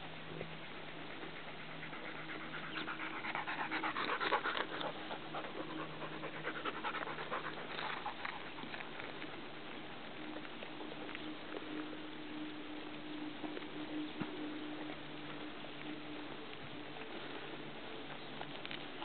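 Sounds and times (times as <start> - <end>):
dog panting: 0.5 - 9.3.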